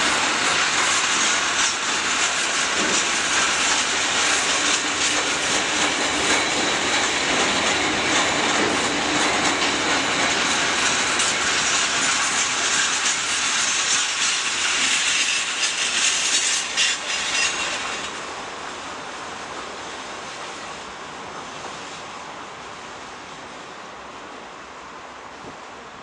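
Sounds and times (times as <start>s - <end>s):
train wheels rolling on rails: 0.0s - 26.0s.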